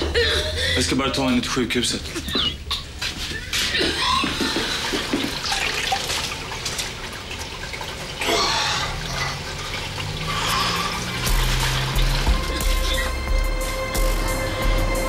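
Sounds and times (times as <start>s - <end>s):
water splashing in toilet bowl: 3.1s - 13.4s.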